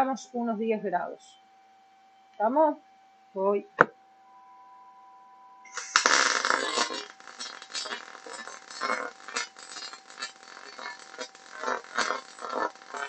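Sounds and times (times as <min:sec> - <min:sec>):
welding arc crackling and sputtering: 0:05.7 - 0:13.0.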